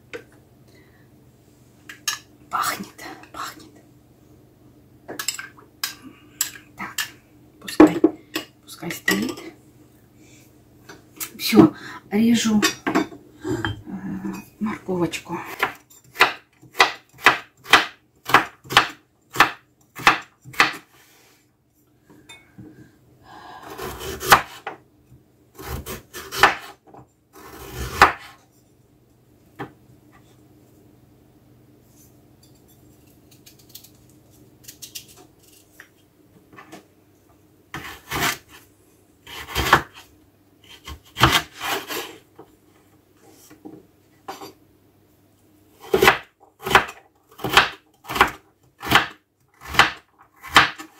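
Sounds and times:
knife chopping on wooden board: 0:15.6 - 0:20.8, 0:24.0 - 0:24.8, 0:25.6 - 0:26.7, 0:27.8 - 0:28.4, 0:45.9 - 0:50.9.

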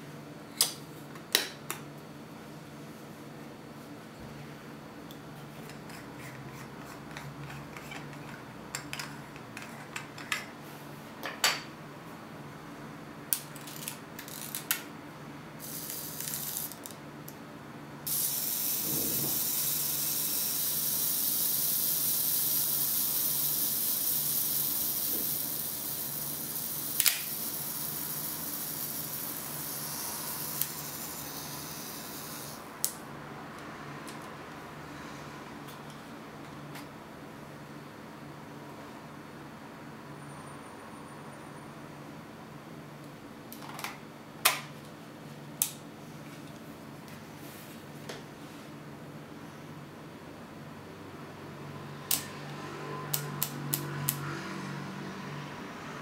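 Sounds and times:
steady hiss: 0:18.1 - 0:32.7.

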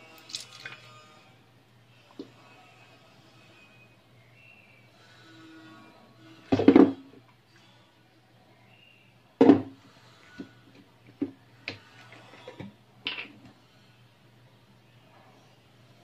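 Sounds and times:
kitchen items knocking and clattering: 0:06.6 - 0:07.1, 0:09.4 - 0:09.8.

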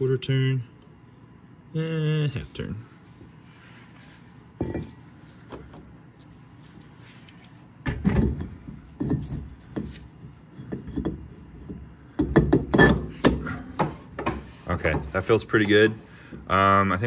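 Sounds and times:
metal knocks and scrapes: 0:07.9 - 0:15.9.

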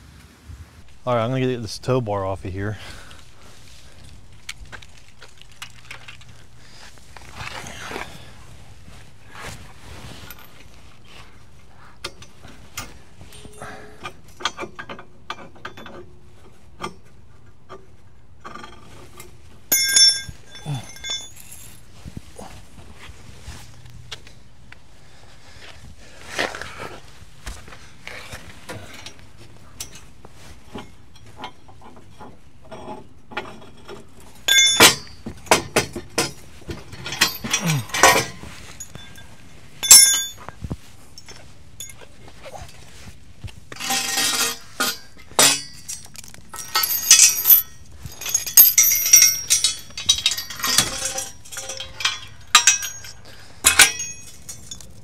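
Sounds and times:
metal clinking and rattling: 0:12.0 - 0:17.1, 0:18.4 - 0:21.9, 0:29.8 - 0:40.5, 0:41.1 - 0:42.9, 0:43.7 - 0:55.0.

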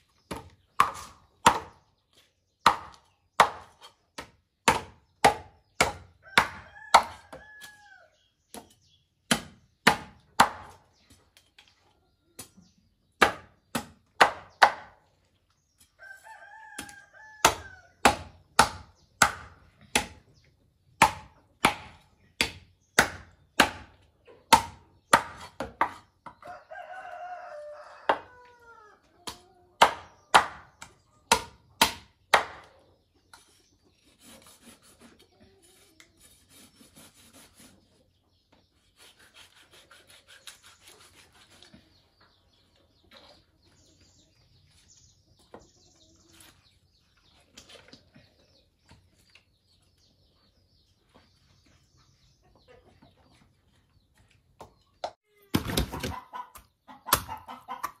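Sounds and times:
rooster crowing: 0:26.4 - 0:28.9.

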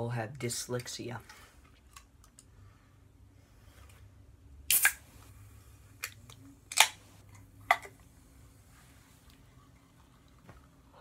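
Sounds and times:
soda can opening with hiss: 0:04.7 - 0:05.0.

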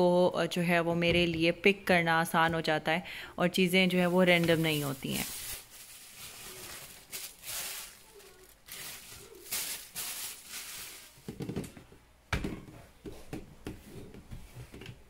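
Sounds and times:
plastic bag crinkling: 0:03.9 - 0:11.5.

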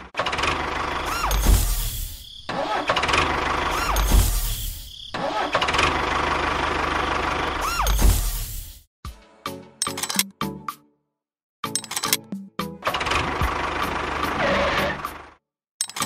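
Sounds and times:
tractor engine starting and running: 0:00.0 - 0:08.3, 0:11.7 - 0:16.0.

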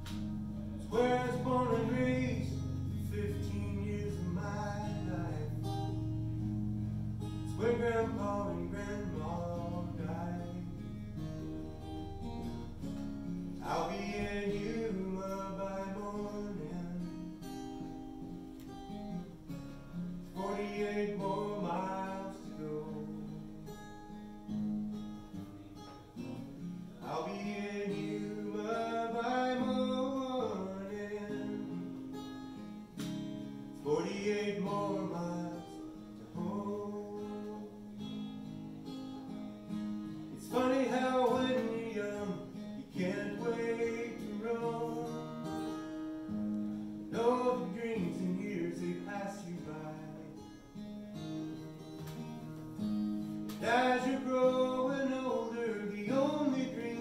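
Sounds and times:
acoustic guitar strumming: 0:00.0 - 0:57.0
man singing: 0:00.8 - 0:06.0, 0:07.2 - 0:11.3, 0:13.6 - 0:17.3, 0:20.2 - 0:23.4, 0:27.0 - 0:31.9, 0:33.8 - 0:38.0, 0:40.3 - 0:45.5, 0:47.1 - 0:50.5, 0:53.6 - 0:57.0.

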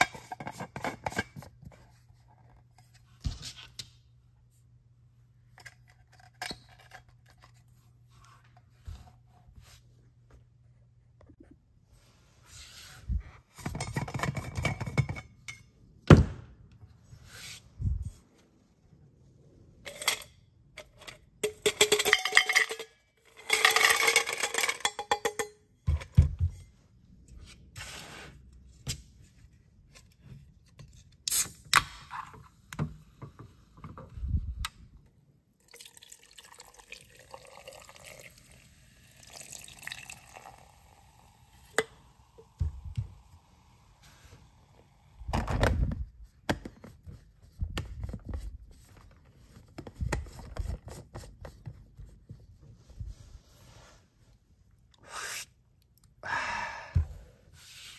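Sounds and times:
fizzy drink pouring: 0:35.6 - 0:42.0.

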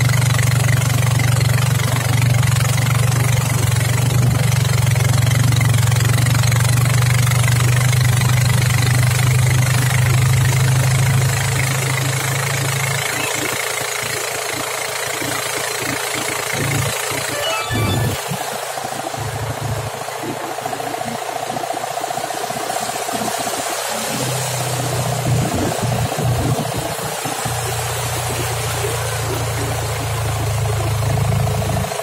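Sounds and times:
motorboat engine running: 0:00.0 - 0:32.0
rushing water: 0:00.0 - 0:32.0
wind noise: 0:25.1 - 0:29.2.

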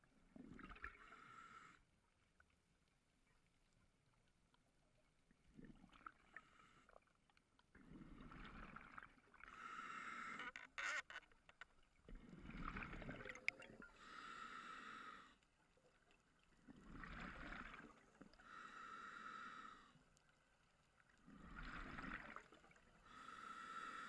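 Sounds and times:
diver exhaling bubbles: 0:12.2 - 0:13.9.

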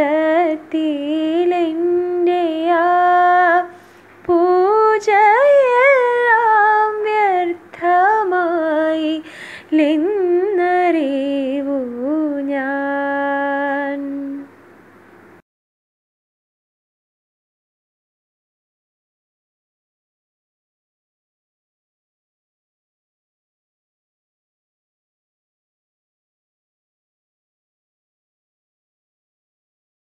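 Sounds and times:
woman singing unaccompanied: 0:00.0 - 0:14.6.

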